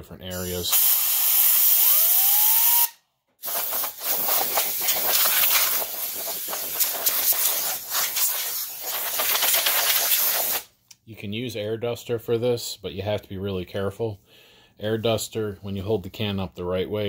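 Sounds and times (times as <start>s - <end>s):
compressed air hissing: 0.4s - 10.7s.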